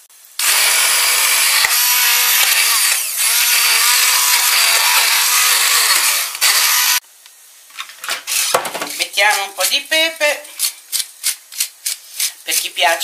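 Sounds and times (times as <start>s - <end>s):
stick blender motor whine: 0.4s - 7.0s.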